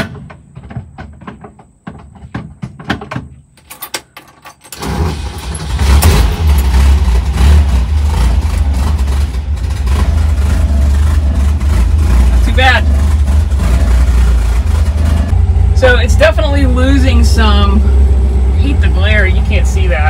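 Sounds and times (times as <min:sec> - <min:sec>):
engine starting and idling: 0:04.0 - 0:20.0.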